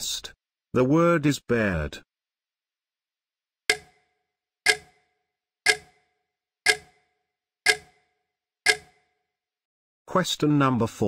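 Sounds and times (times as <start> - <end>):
clock ticking: 3.7 - 4.1, 4.7 - 5.1, 5.7 - 9.1.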